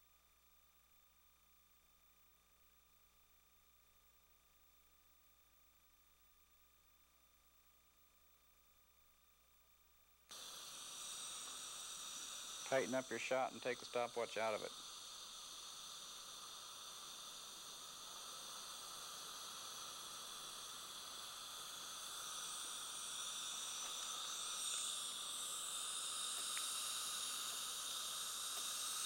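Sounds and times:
steady hiss: 10.2 - 29.0.

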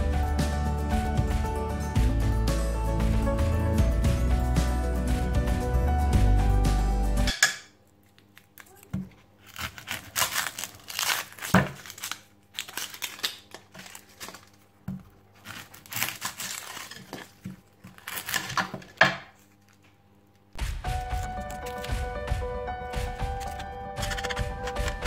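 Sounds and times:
onion skin crackling and tearing: 7.9 - 20.0, 21.0 - 22.0.

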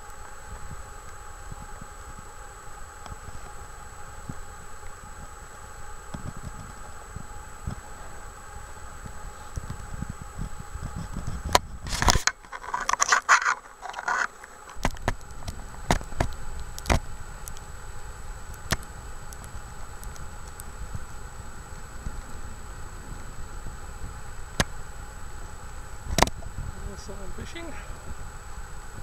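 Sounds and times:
wind rumbling on microphone: 0.0 - 29.0
crackling and scraping: 2.9 - 24.8.

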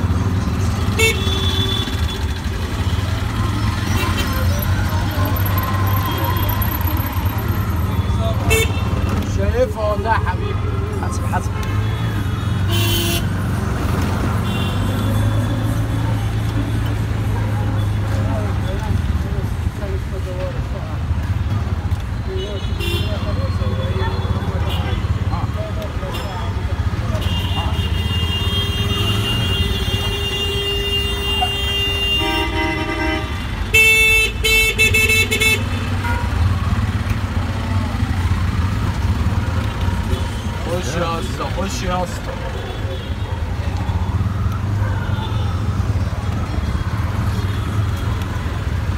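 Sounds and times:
auto-rickshaw engine running: 0.0 - 22.2, 22.8 - 48.9
traffic noise: 0.0 - 48.9
vehicle horns honking: 0.8 - 3.0, 8.0 - 9.2, 11.6 - 13.5, 14.4 - 15.4, 22.3 - 25.2, 27.1 - 36.6
long steady horn tone: 27.2 - 36.4.

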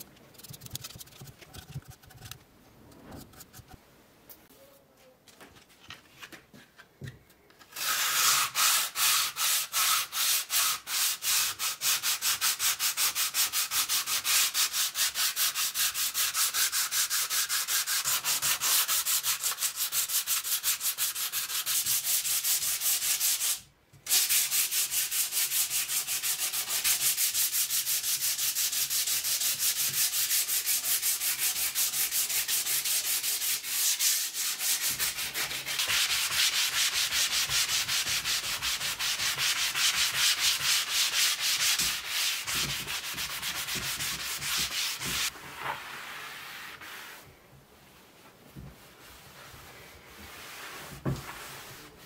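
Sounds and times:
sandpaper rubbing on wood: 7.8 - 47.2.

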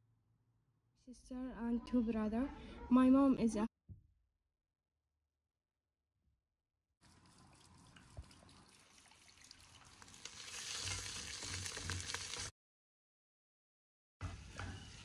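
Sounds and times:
food sizzling in a pot: 8.8 - 12.5.

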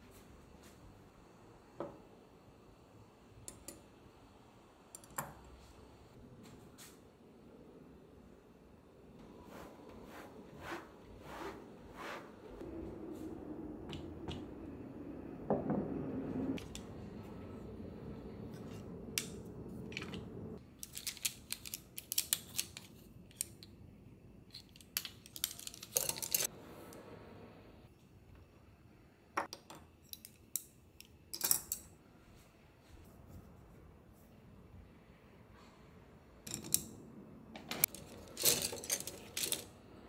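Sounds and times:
wooden utensils clattering: 37.6 - 39.7.

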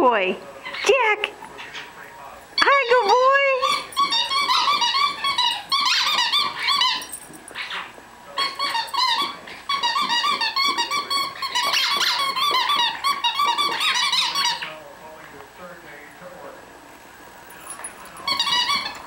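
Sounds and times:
squeaky dog toy squeaking: 2.6 - 14.7, 18.2 - 19.0.

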